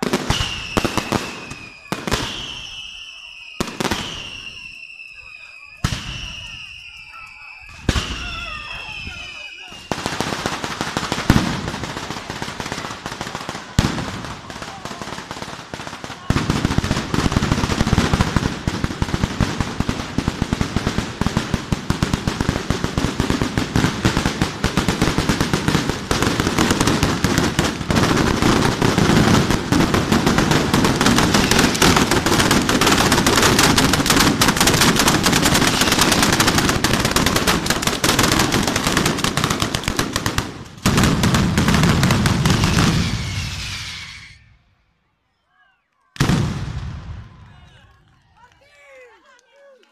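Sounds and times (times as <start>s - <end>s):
firecrackers rattling bangs: 5.7s - 44.4s.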